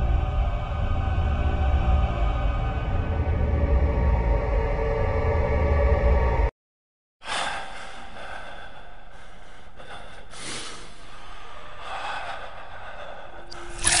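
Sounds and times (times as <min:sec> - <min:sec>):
person breathing heavily: 0:07.2 - 0:14.0.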